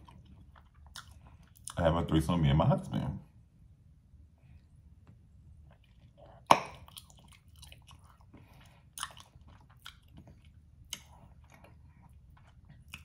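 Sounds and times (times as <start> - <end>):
mouth chewing food: 0.0 - 1.9, 5.6 - 13.0.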